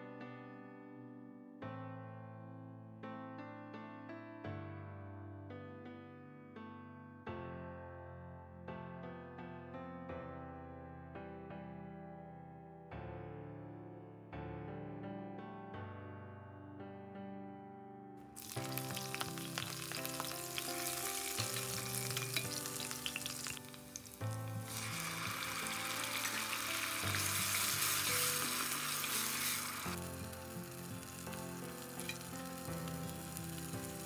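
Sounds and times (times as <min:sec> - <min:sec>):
liquid poured into sizzling pot: 0:18.4 - 0:34.0
onions sizzling in oil: 0:18.4 - 0:34.0.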